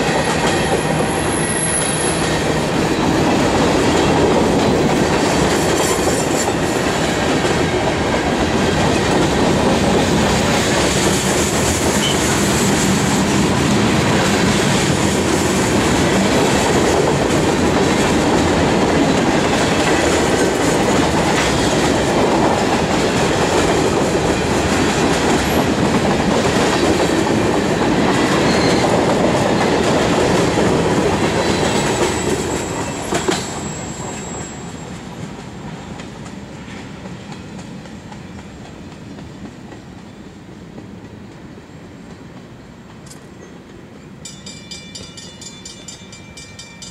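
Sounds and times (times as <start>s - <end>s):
freight train rumble: 0.0s - 46.9s
wheels clattering on rails: 3.4s - 39.9s.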